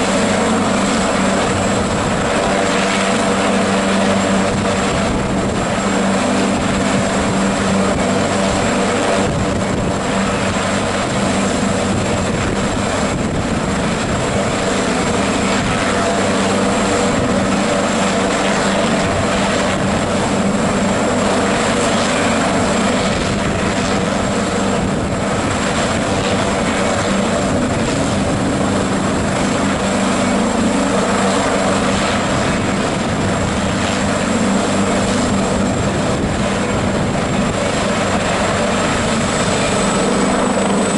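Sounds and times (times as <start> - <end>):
helicopter running: 0.0 - 40.9.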